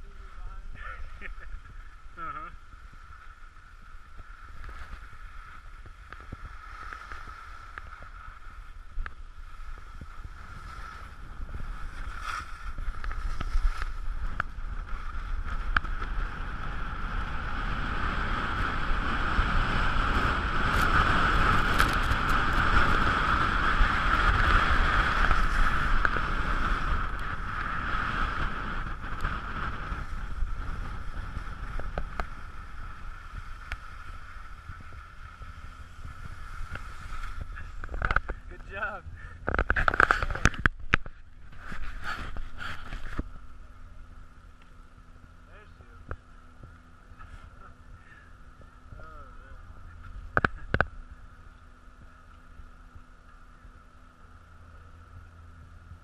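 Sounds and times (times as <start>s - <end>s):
wind noise on microphone: 0.0s - 56.0s
skis scraping on snow: 2.8s - 39.0s, 39.6s - 43.5s.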